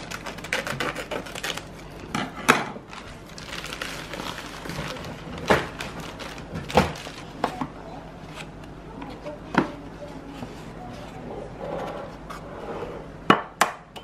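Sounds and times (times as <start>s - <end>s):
plastic packet crinkling: 0.0s - 2.1s, 2.9s - 7.5s.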